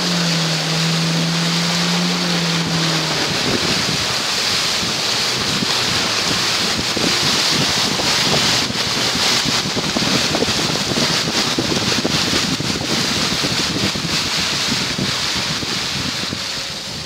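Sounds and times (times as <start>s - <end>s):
rain: 0.0s - 17.0s
water thrown up by car tyres: 0.0s - 17.0s
wind buffeting microphone: 0.0s - 17.0s.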